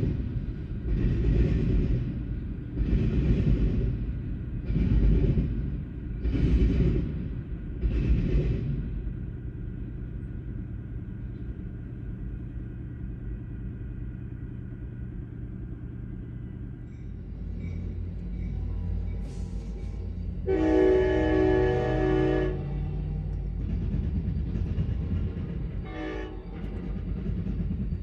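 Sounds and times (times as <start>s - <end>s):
diesel locomotive rumbling: 0.0s - 28.0s
locomotive air horn chord: 20.4s - 22.8s, 25.9s - 26.4s.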